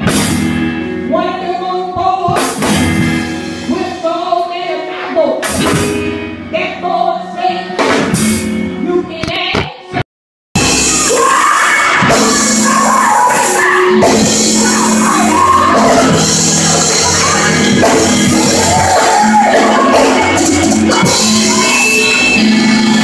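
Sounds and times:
drum kit playing: 0.0s - 1.1s, 2.2s - 4.0s, 5.4s - 6.4s, 7.8s - 8.8s, 10.6s - 23.0s
gospel band music: 0.0s - 9.5s, 10.6s - 23.0s
people singing and shouting: 6.5s - 8.0s, 10.6s - 23.0s.

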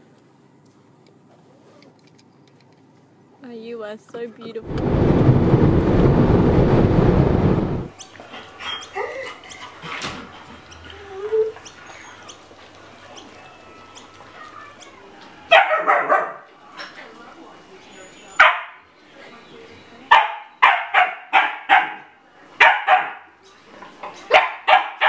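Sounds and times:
car road noise: 4.6s - 7.9s
puppy yapping: 14.0s - 16.5s, 20.1s - 23.3s, 24.2s - 25.0s.

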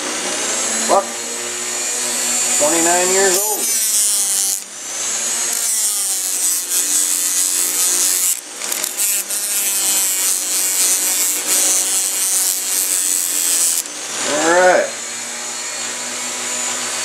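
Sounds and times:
rotary tool whine: 0.0s - 17.0s
cleaning wheel scratching metal: 2.3s - 4.7s, 5.4s - 13.9s.

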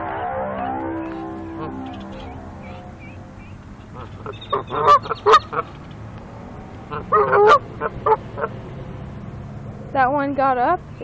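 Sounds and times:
goose honking: 1.0s - 6.0s, 6.6s - 8.8s.

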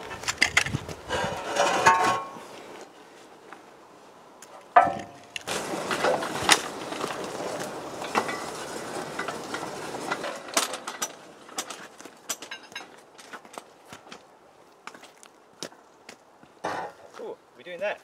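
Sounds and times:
steel beam scraping on concrete: 1.1s - 2.4s
ringing metallic clank: 4.8s - 5.2s.

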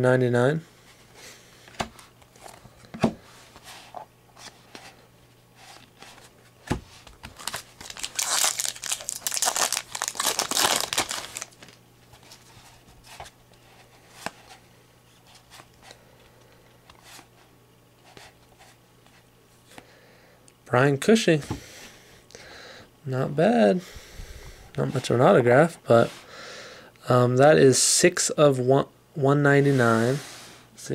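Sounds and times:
foil wrapper crinkling and tearing: 7.2s - 11.8s.

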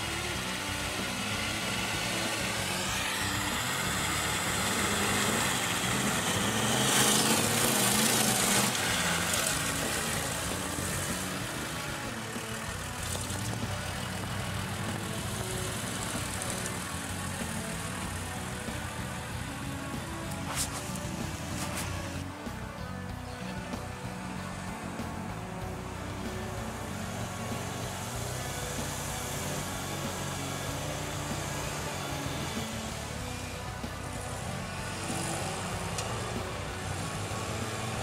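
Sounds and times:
tyres spinning throwing sand: 0.0s - 22.7s
off-road engine revving: 0.0s - 38.0s.

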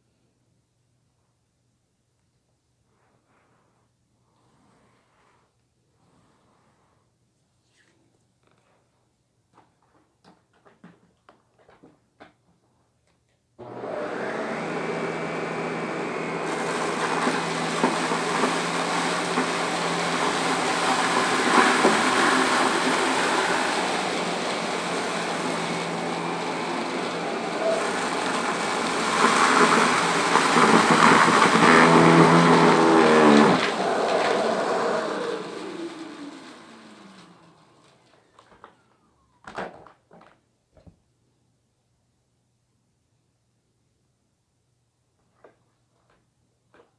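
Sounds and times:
motor winding down: 13.6s - 38.8s
vacuum cleaner motor hum: 13.6s - 38.9s.

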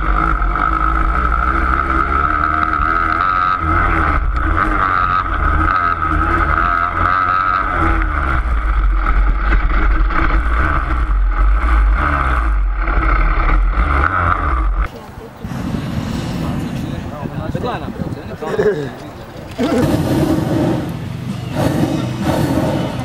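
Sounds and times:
motorcycle engines revving high: 0.0s - 23.0s
wind on microphone: 14.9s - 23.0s.

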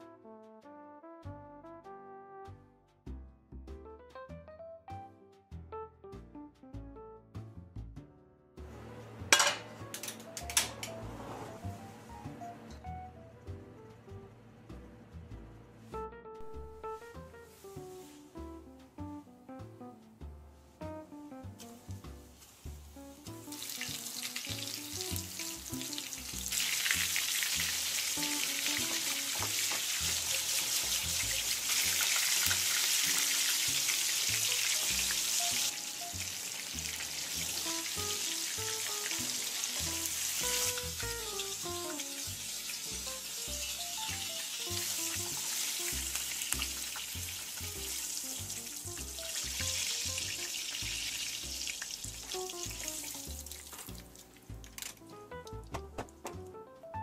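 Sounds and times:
background music: 0.0s - 57.0s
food sizzling in hot oil: 21.7s - 54.9s.

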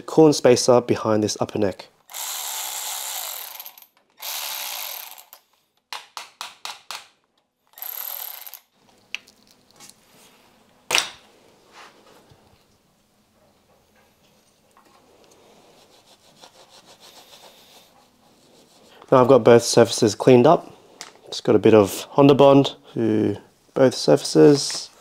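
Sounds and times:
electric ratchet running: 2.1s - 5.4s, 7.7s - 8.7s
faint handling sounds: 8.8s - 16.1s.

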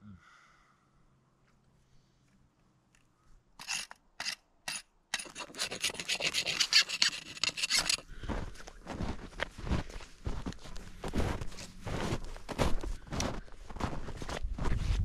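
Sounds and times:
blade scraping wood: 3.6s - 8.1s
footsteps in snow: 6.4s - 15.0s.

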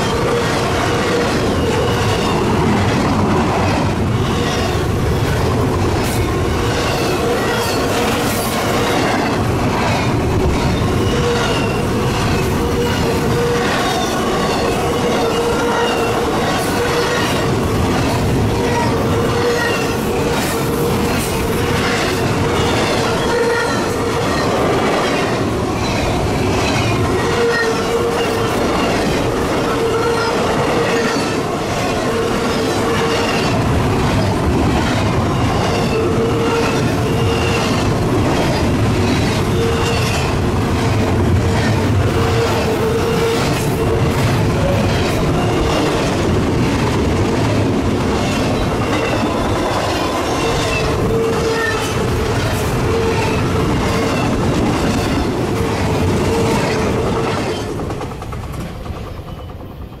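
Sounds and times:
freight train wheels rumbling on rail: 0.0s - 60.0s.

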